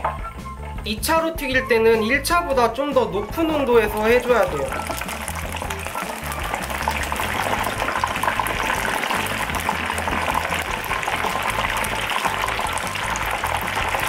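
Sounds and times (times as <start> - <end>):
chicken frying in hot oil: 3.3 - 14.0.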